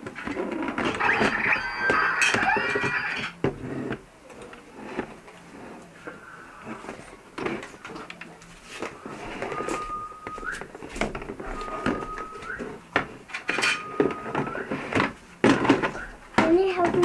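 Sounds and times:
steady high tone: 0.9s - 3.3s, 8.8s - 12.8s.

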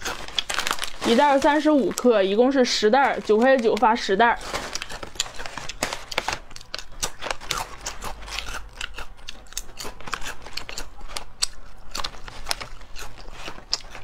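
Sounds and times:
foil snack bag crinkling: 0.0s - 14.0s
chip crunching bites: 4.7s - 14.0s.

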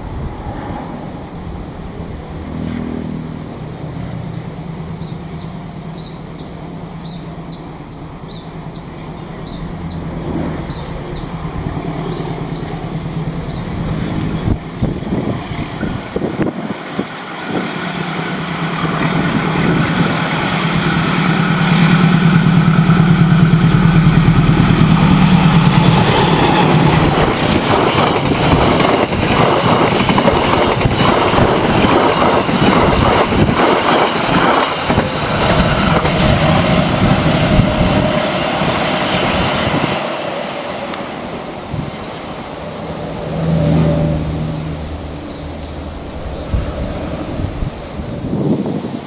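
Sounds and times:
locomotive engine drone: 0.0s - 49.0s
train wheels clattering on rails: 15.1s - 42.3s.

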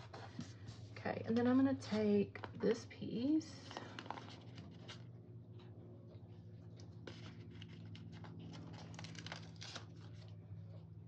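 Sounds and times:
low steady hum: 0.0s - 11.0s
paper sticker crinkling: 3.6s - 5.1s, 6.8s - 10.8s.

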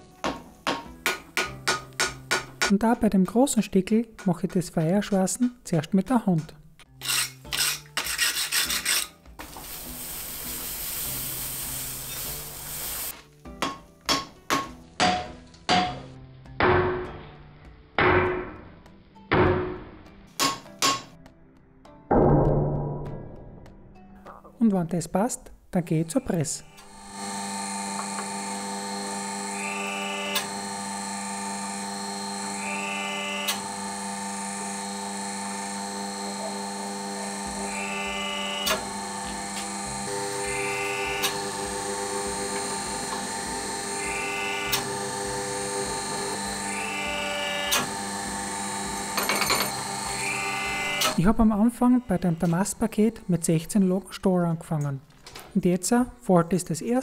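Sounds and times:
wire brush scrubbing hot steel: 7.0s - 13.1s
sizzling hiss: 9.4s - 13.2s
hammer blows ringing on anvil: 13.6s - 16.0s
press whine: 26.2s - 53.4s
pump motor humming: 26.6s - 51.4s.

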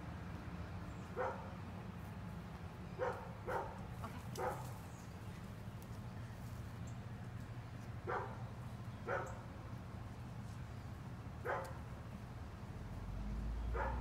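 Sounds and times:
dog barking: 1.2s - 1.5s, 3.0s - 3.8s, 4.4s - 4.8s, 8.0s - 8.4s, 9.0s - 9.4s, 11.4s - 11.8s, 13.7s - 14.0s.

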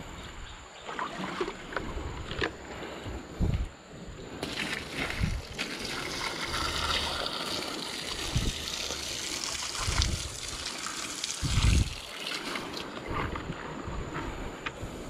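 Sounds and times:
water splashing over stone steps: 4.4s - 13.0s.

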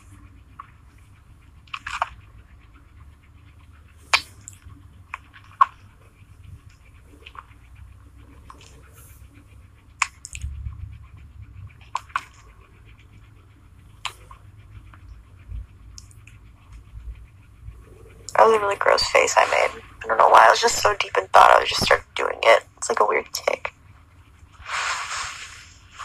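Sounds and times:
lip smacks and clicks: 1.6s - 2.3s, 10.0s - 10.5s, 11.7s - 13.2s, 15.9s - 16.8s.

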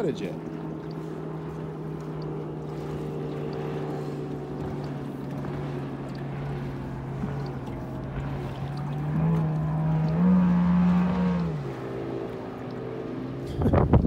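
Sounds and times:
boat motor humming: 0.0s - 14.0s
water noise: 0.0s - 14.0s
wind noise: 13.5s - 14.0s.

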